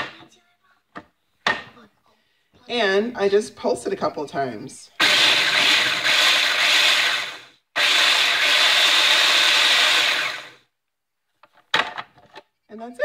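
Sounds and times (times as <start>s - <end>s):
food processor grinding: 5.0s - 10.6s.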